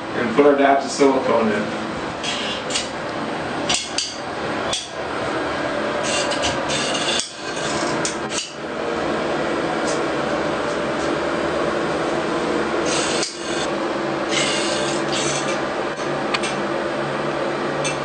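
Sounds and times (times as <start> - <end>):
scraping and rubbing: 6.0 - 8.0.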